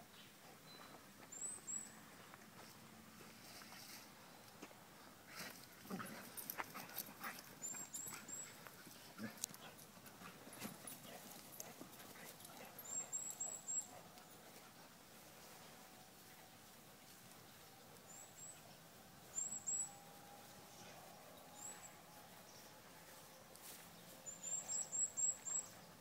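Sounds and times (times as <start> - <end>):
dogs play-fighting: 5.4 - 16.0.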